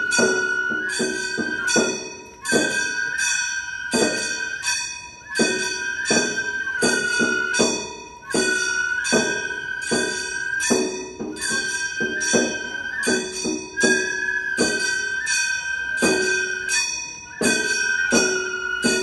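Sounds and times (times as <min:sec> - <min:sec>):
bamboo flute long high notes: 0:00.0 - 0:19.0.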